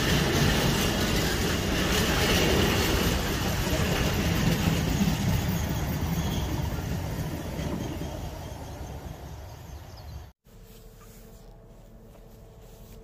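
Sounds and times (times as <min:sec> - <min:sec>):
train wheels rattling on rails: 0:00.0 - 0:10.3.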